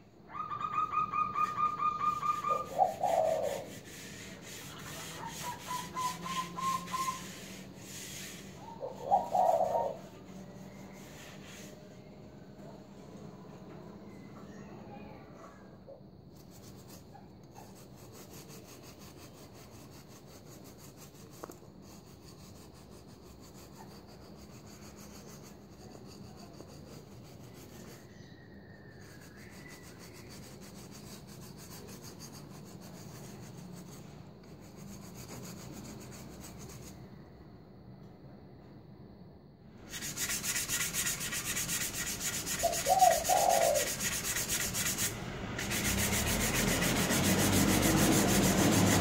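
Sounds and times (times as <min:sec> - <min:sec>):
abrasive block scrubbing metal blade: 0:39.9 - 0:49.0.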